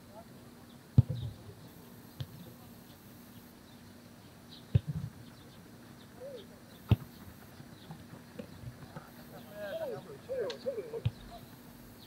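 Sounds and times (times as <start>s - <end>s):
football kick thuds: 1.0s - 1.4s, 4.7s - 5.1s, 6.9s - 7.3s, 11.0s - 11.2s
faint bird chirps: 3.2s - 8.7s.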